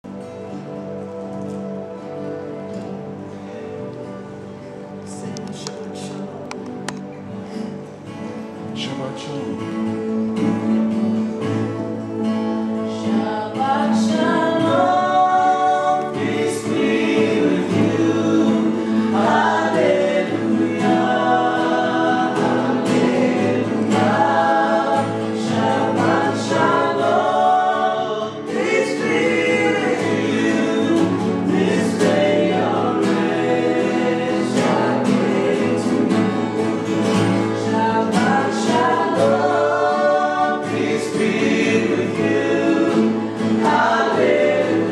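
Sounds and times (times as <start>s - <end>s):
sustained instrumental accompaniment: 0.0s - 44.9s
choir singing slow melody: 10.1s - 44.9s.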